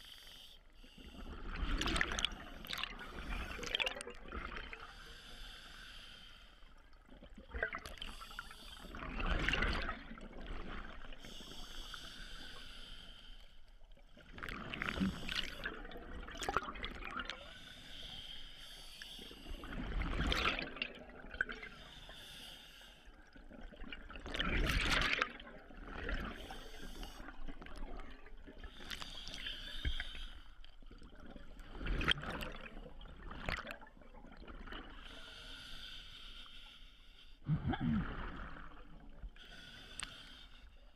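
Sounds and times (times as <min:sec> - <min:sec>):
diver breathing through regulator: 0:04.8 - 0:06.7, 0:11.2 - 0:13.6, 0:17.4 - 0:19.7, 0:21.7 - 0:23.1, 0:28.7 - 0:30.7, 0:35.1 - 0:38.0, 0:39.4 - 0:40.8.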